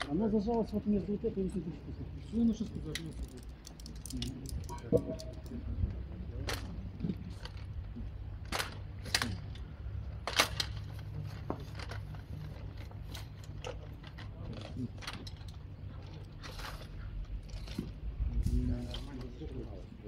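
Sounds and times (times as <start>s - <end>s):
metallic clicks of climbing gear: 2.2s - 11.1s, 11.7s - 19.6s.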